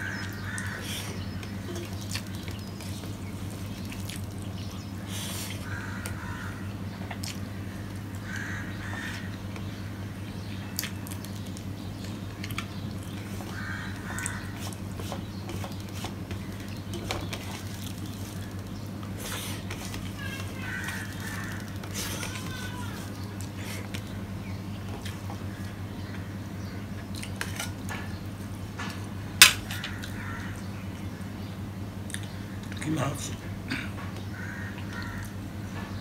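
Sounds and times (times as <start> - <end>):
bird calling: 0.0 - 26.9
steady low hum: 0.0 - 36.0.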